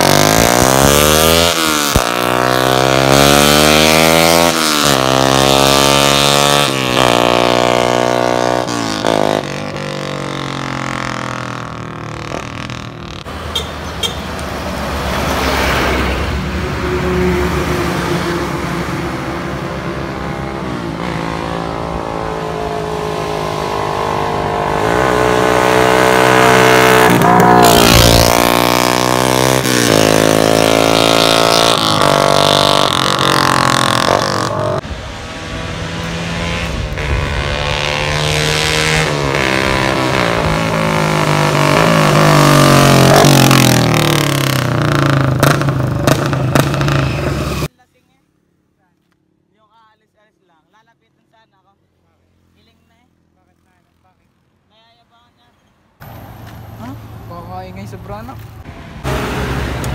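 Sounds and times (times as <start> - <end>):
motorcycle engine accelerating: 0.0 - 14.2, 18.7 - 47.7.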